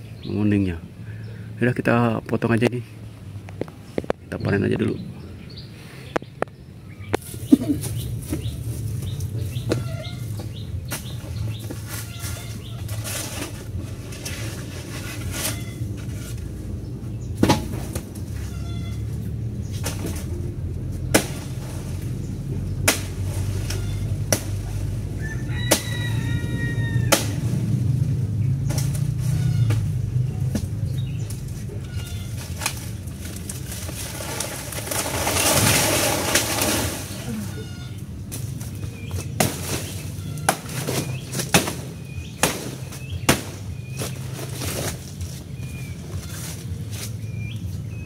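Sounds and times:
leaves rustling: 7.1s - 48.0s
machete chopping through stalk: 21.0s - 21.8s, 22.8s - 24.7s, 27.0s - 27.6s, 39.2s - 45.0s
blade chopping plant stalk: 21.1s - 21.6s
rooster crowing: 25.1s - 27.5s.

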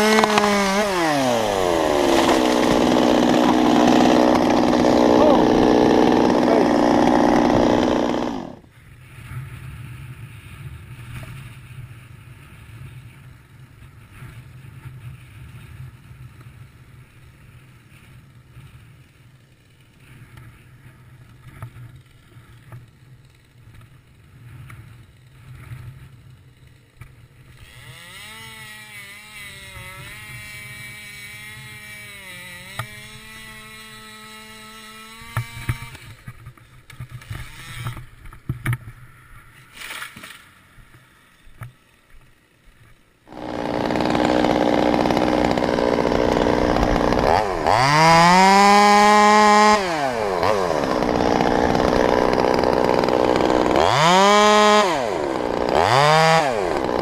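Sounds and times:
chainsaw running at full throttle: 0.0s - 8.7s, 27.5s - 36.3s, 37.3s - 38.0s, 43.3s - 57.0s
distant chainsaw cutting: 0.0s - 8.7s, 27.4s - 57.0s.

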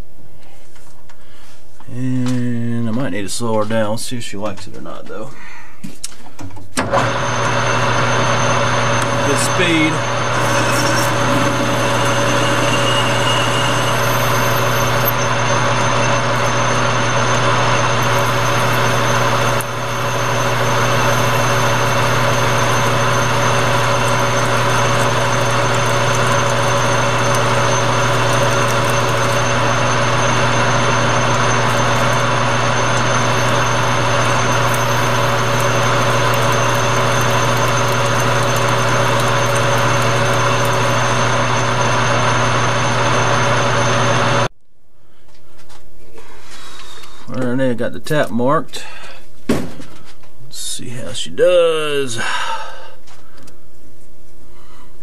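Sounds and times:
drill boring into metal: 6.8s - 44.5s
metal lathe running: 6.8s - 44.5s.

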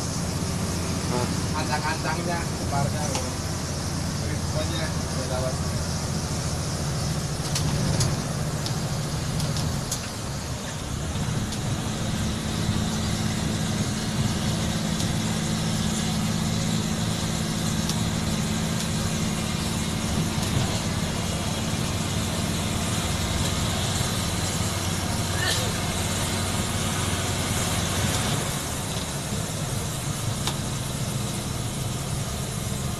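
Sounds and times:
bus diesel engine under load: 0.0s - 32.9s.

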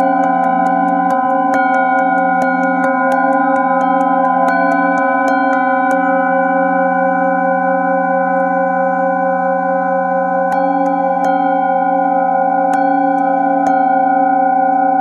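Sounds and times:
striker hitting bowls: 0.0s - 7.6s, 10.4s - 15.0s
singing bowls ringing: 0.0s - 15.0s.

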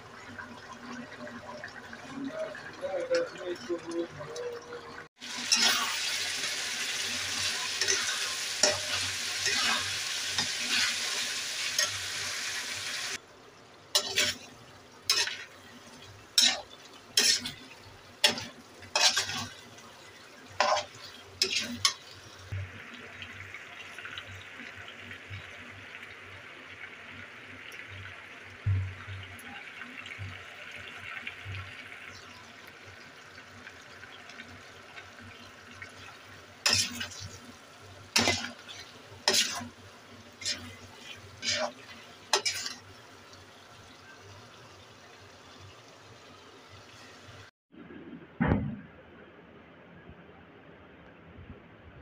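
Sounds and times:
curry sizzling and bubbling: 0.0s - 47.5s
spatula scraping a pan: 5.4s - 6.3s, 7.3s - 12.0s, 14.0s - 14.5s, 15.1s - 15.6s, 16.4s - 19.6s, 20.6s - 22.2s, 36.6s - 37.4s, 38.2s - 39.8s, 40.4s - 42.9s.

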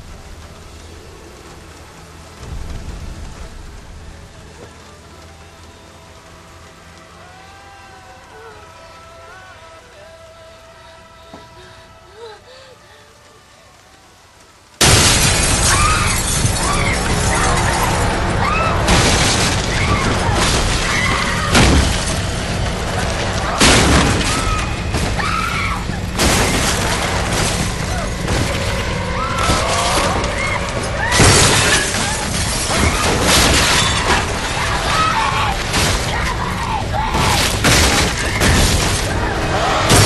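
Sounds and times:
steady rain: 0.0s - 40.0s
person crying out: 10.8s - 13.2s
window glass shattering: 14.8s - 40.0s.

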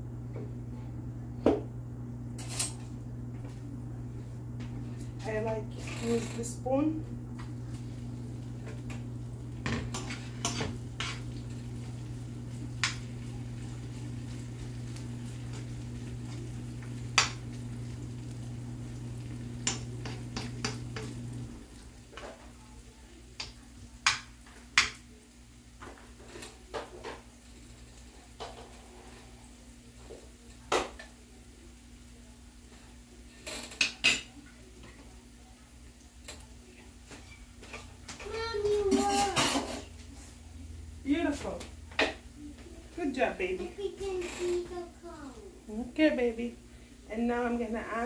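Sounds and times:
steady low hum: 0.0s - 21.8s
onion frying in oil: 2.2s - 48.0s
spoon clinking and scraping pan: 9.7s - 11.4s.

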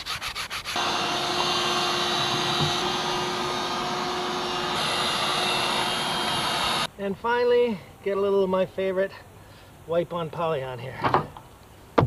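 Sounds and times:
hand sanding wood: 0.0s - 6.9s
shop vacuum running: 0.8s - 6.9s.

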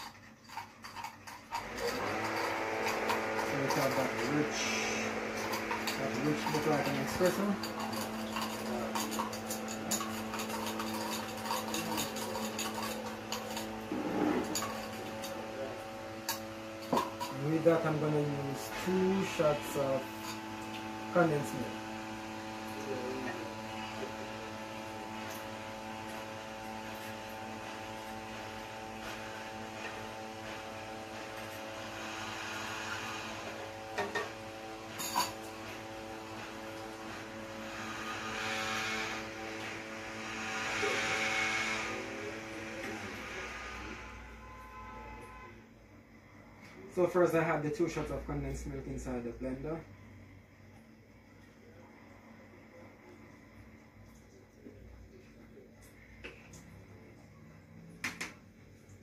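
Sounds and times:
spoon clinking in metal cup: 0.0s - 15.4s, 35.0s - 35.5s
electrical hum: 0.0s - 59.0s.

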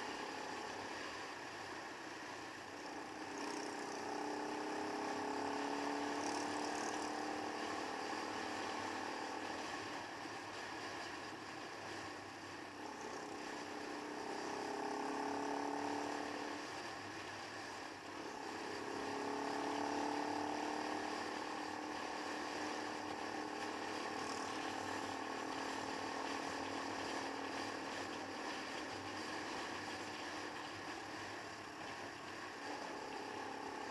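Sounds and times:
motorcycle engine running: 0.0s - 33.9s.

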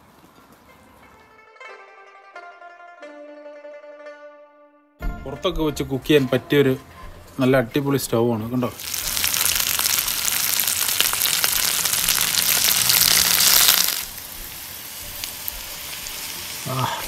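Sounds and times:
hot oil sizzling and crackling: 8.5s - 17.0s
oil popping: 8.7s - 17.0s.

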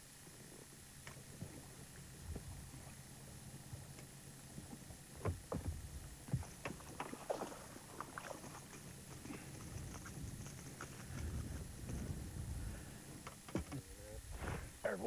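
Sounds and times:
fish thrashing and splashing: 6.7s - 11.3s.

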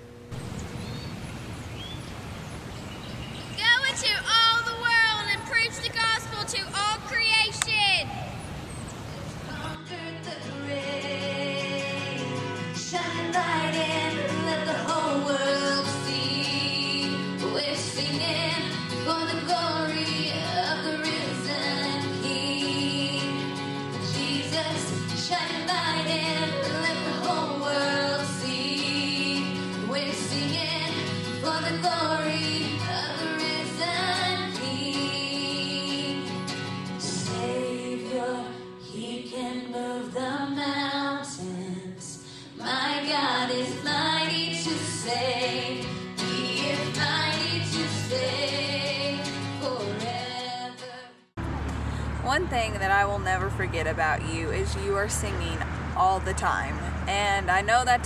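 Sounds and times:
woman singing into microphone: 9.5s - 36.4s, 37.0s - 51.2s
acoustic guitar: 9.5s - 58.0s.

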